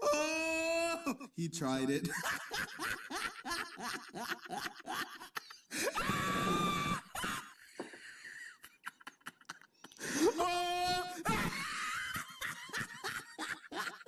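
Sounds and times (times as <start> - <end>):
person crying out: 0.0 - 1.2, 10.2 - 11.7.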